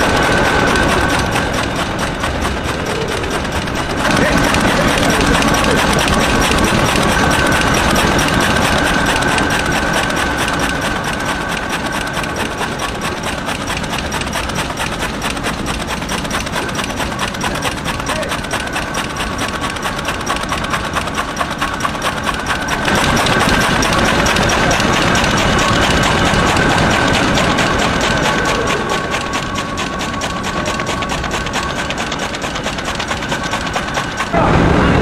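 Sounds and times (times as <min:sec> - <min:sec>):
machine clattering: 0:00.0 - 0:35.0
steady machine whine: 0:00.0 - 0:35.0.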